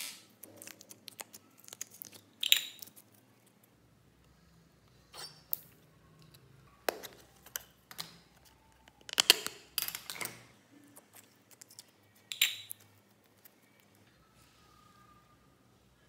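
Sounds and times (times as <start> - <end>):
sticky putty crackles: 0.0 - 3.6.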